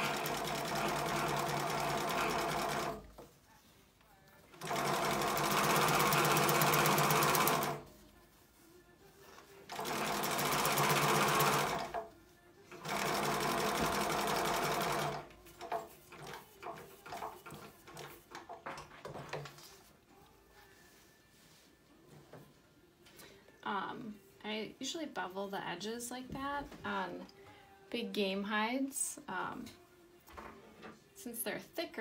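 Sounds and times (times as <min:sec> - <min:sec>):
sewing machine stitching: 0:00.0 - 0:03.1, 0:04.6 - 0:07.8, 0:09.7 - 0:12.1, 0:12.7 - 0:18.4.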